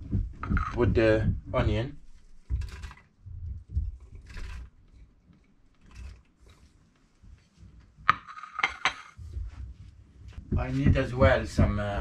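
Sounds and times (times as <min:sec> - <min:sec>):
knocks and scrapes at a pot: 0:00.1 - 0:06.7, 0:08.0 - 0:09.5
plate and utensils clinking: 0:08.1 - 0:09.2.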